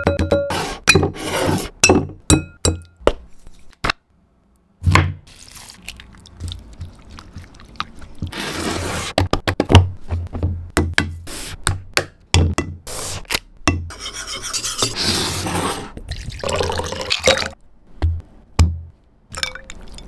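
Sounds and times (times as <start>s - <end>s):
chicken squishing in marinade: 5.3s - 8.3s.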